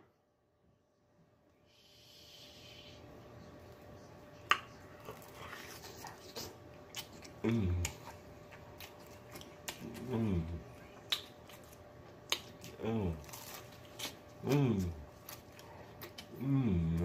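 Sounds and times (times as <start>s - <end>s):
low mmm moan: 7.4s - 8.0s, 9.8s - 10.6s, 14.4s - 15.0s, 16.3s - 17.0s.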